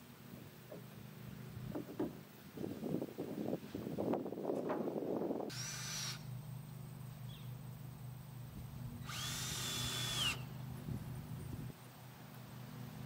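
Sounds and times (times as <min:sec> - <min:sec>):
steady low hum: 0:00.0 - 0:13.0
power drill whining: 0:05.5 - 0:06.2, 0:09.0 - 0:10.5.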